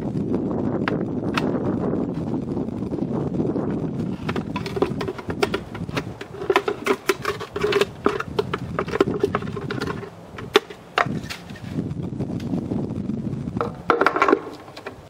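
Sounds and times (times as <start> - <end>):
glass bowl clicks and scrapes: 4.2 - 11.8.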